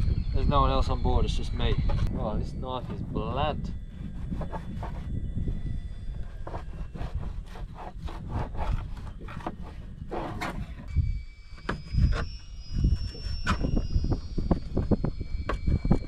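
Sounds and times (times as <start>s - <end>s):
faint steady whine: 0.0s - 7.8s, 8.7s - 16.0s
knife sawing on cutting board: 6.6s - 9.2s.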